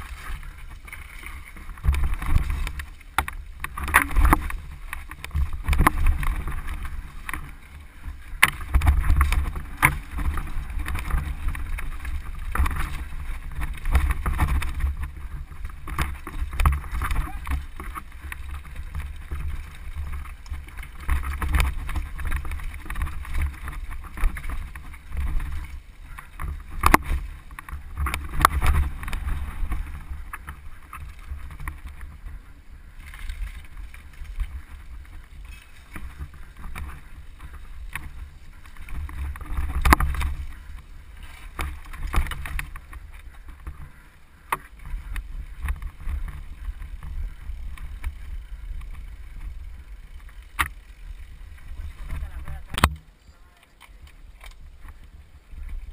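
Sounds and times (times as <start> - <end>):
bike knocking and rattling on rocks: 0.0 - 55.9
tyres rushing on dirt and stones: 0.0 - 55.9.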